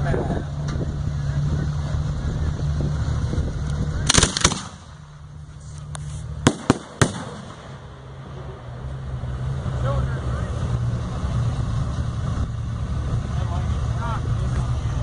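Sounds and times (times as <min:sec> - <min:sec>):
steady low hum: 0:00.0 - 0:15.0
firework mortar launch: 0:03.8 - 0:08.8
firework shells bursting: 0:04.0 - 0:05.0, 0:05.9 - 0:08.2.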